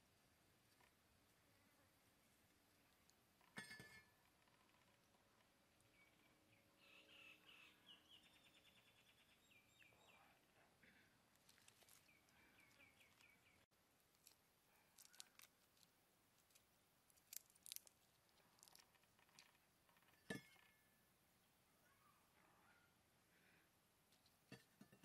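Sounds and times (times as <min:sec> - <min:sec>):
bird chirping: 0:05.8 - 0:10.7, 0:11.5 - 0:13.7.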